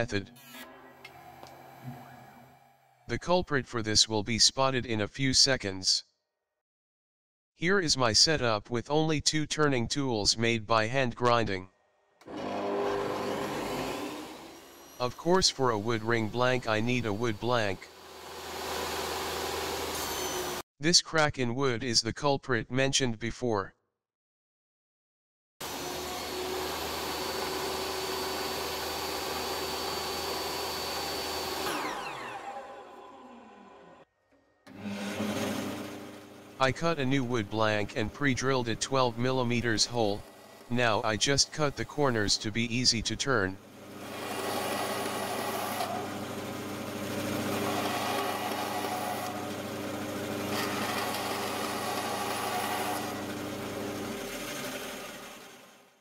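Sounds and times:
table saw running: 0.0s - 3.1s, 12.2s - 15.2s, 15.8s - 20.6s, 25.6s - 34.1s, 34.7s - 42.2s, 43.6s - 56.0s
saw blade spinning down: 17.1s - 20.6s, 25.8s - 34.0s, 34.7s - 36.3s, 43.9s - 55.8s.

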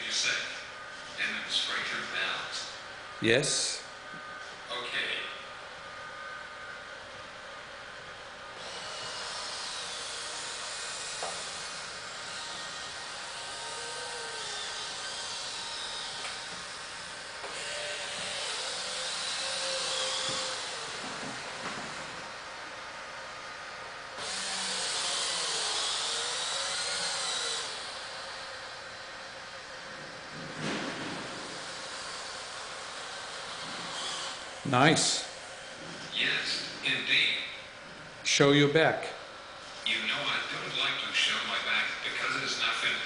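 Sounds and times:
servo motors whirring: 8.6s - 22.3s, 24.2s - 28.5s, 31.2s - 34.6s.

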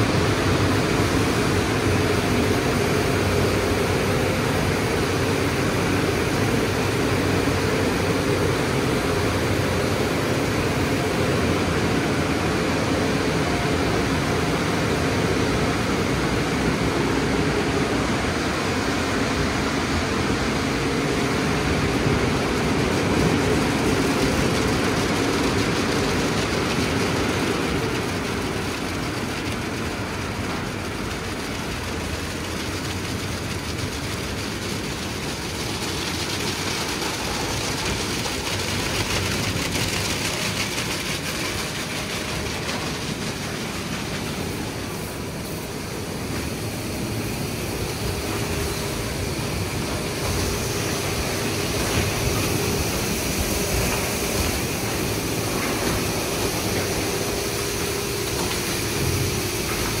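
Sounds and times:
car wash brushes spinning: 21.4s - 60.0s.

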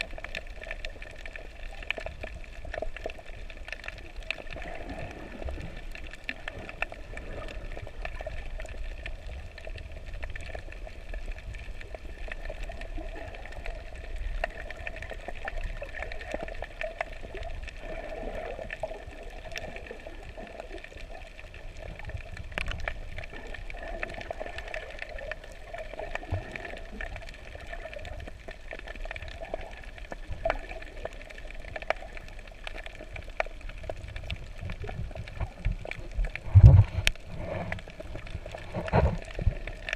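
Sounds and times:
faint clicks and crackles: 0.0s - 39.9s
muffled water rush: 0.0s - 39.9s
low rumble: 34.2s - 39.9s.

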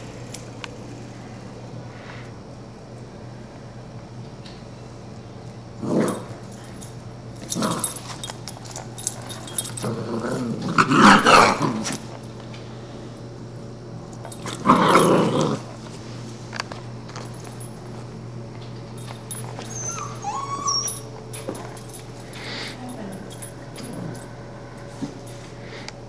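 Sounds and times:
puppy growling and barking: 5.8s - 6.6s, 7.4s - 12.1s, 14.3s - 15.8s, 19.3s - 21.2s, 23.1s - 24.3s.

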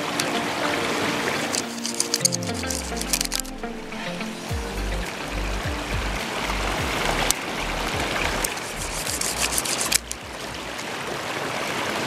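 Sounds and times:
river water rushing over rocks: 0.0s - 12.0s
wooden pieces clicking: 1.4s - 3.5s, 8.4s - 10.2s
low rumble: 3.6s - 9.4s.

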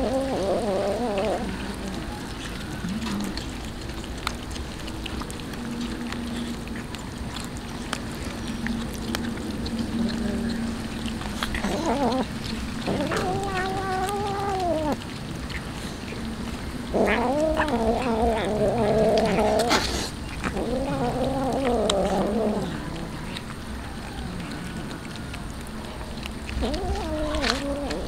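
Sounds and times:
cat yowling: 11.6s - 15.0s, 17.0s - 19.7s, 20.5s - 25.0s, 26.6s - 28.0s.

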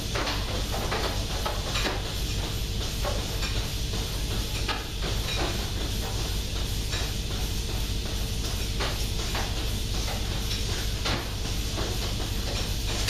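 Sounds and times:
milking vacuum hum and hiss: 0.0s - 13.0s.

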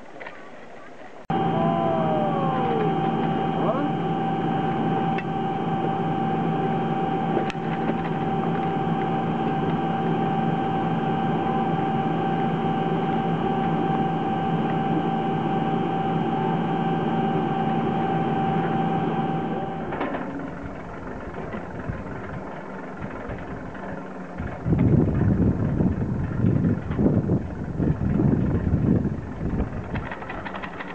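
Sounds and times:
constant machine whine: 0.0s - 30.9s
machinery humming: 1.3s - 30.9s.

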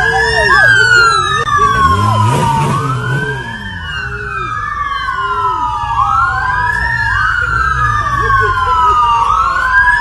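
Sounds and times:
police sirens wailing: 0.0s - 10.0s.

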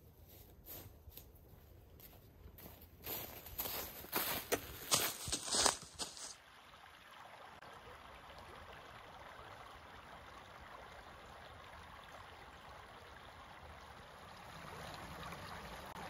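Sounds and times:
footstep in dry leaves: 0.2s - 6.4s
creek trickling: 4.1s - 16.0s.

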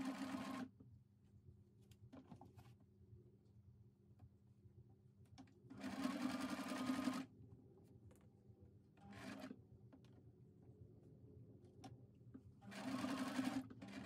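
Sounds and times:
sewing machine stitching: 0.0s - 0.7s, 5.8s - 7.2s, 9.0s - 9.5s, 12.6s - 14.0s.

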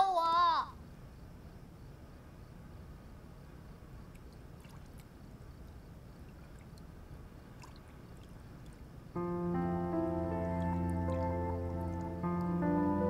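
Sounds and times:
low steady hiss: 0.0s - 13.0s
water dripping: 4.0s - 9.0s, 10.1s - 12.6s
bathwater sloshing: 4.1s - 5.1s, 6.2s - 8.9s
background music held notes: 9.2s - 13.0s.

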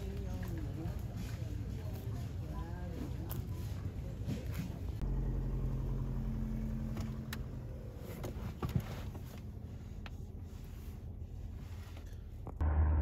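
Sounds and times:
engine idling: 4.8s - 13.0s.

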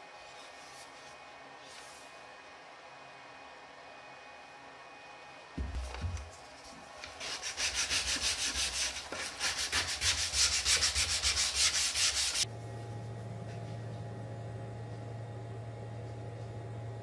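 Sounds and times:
sandpaper rubbing wood: 7.0s - 12.4s
low steady hum: 10.0s - 17.0s.

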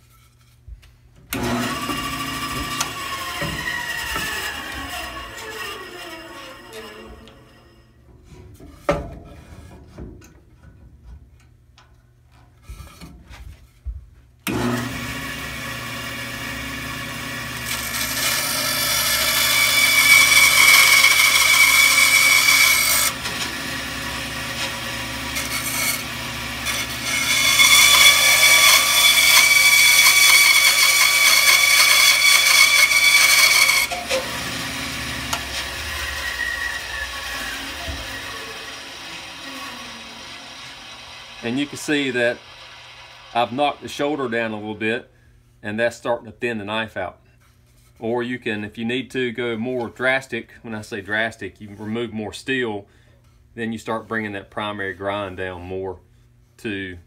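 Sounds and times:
bandsaw cutting wood: 1.3s - 7.9s, 14.5s - 44.8s
bandsaw running: 1.3s - 8.0s, 14.5s - 44.8s.

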